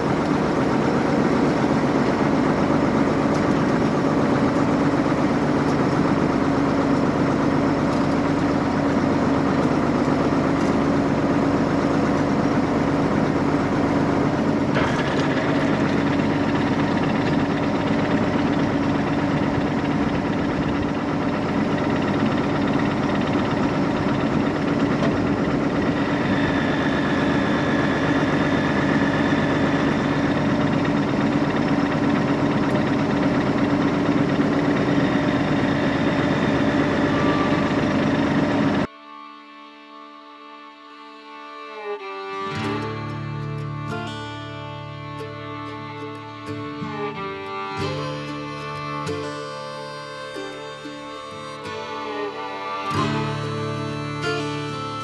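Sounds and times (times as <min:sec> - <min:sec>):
tractor engine running: 0:00.0 - 0:38.9, 0:41.8 - 0:55.0
faint high whine: 0:07.6 - 0:55.0.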